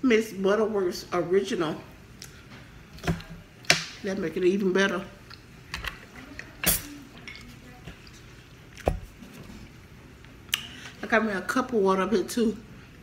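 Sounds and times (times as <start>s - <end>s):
cutlery clinking against a dish: 5.8s - 7.5s
quiet chewing: 7.4s - 10.7s.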